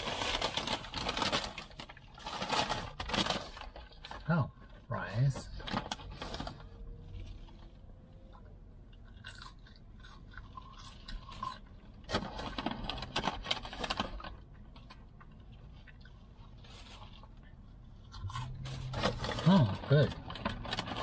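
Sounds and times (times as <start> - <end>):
paper bag crinkling: 0.0 - 4.4, 11.1 - 14.4, 18.2 - 21.0
chewing and crunching fries: 0.0 - 5.3, 5.9 - 21.0.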